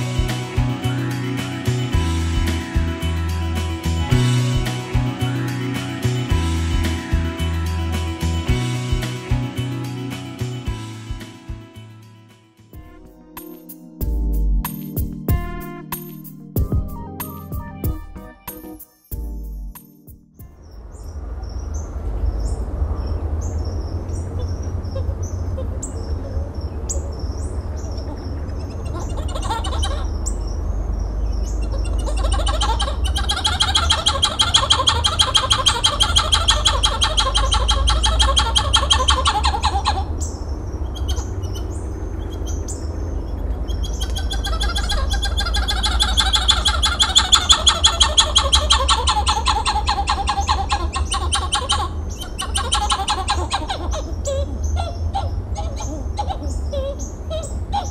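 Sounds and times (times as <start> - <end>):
steady low rumble: 14.0 - 18.2, 19.2 - 49.2
monkey calling rapid notes: 28.1 - 30.3, 31.6 - 40.3, 43.7 - 57.9.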